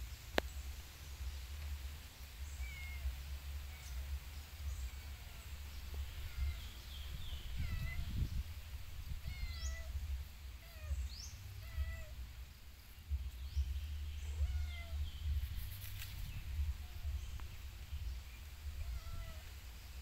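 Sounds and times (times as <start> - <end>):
steady low rumble: 0.0 - 20.0
kitten mewing: 5.0 - 6.8, 7.4 - 8.2, 9.1 - 12.2, 14.3 - 15.4, 18.8 - 19.5.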